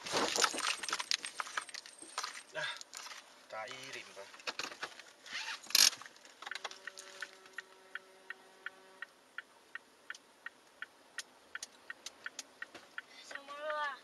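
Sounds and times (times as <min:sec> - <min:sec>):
turn signal relay clicking: 0:05.6 - 0:14.0
faint steady tone: 0:06.4 - 0:14.0.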